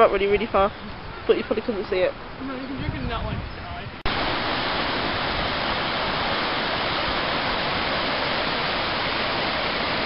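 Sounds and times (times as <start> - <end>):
river rushing over rapids: 4.1 - 10.0.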